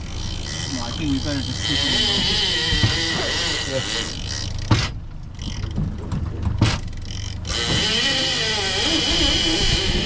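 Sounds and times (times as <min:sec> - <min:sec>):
fishing reel drag buzzing: 0:00.0 - 0:05.7, 0:07.0 - 0:10.0
boat engine hum: 0:00.0 - 0:10.0
sharp knocks: 0:05.6 - 0:06.9.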